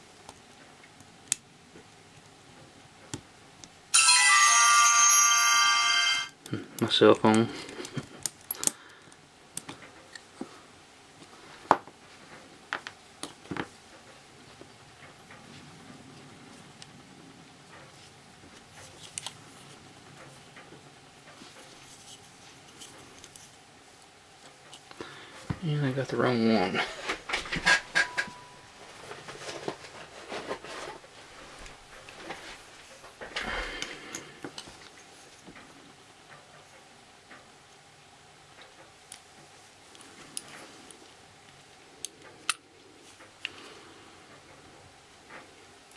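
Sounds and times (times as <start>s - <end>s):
scraping rustle: 28.8s - 33.0s.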